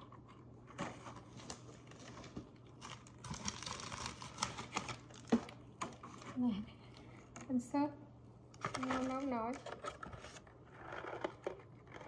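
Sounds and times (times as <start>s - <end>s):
foil and plastic crinkling: 0.8s - 6.6s.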